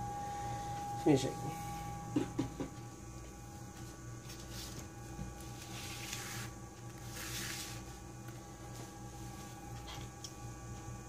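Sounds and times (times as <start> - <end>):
electrical hum: 0.0 - 11.0
tablet sliding on paper: 5.4 - 8.0.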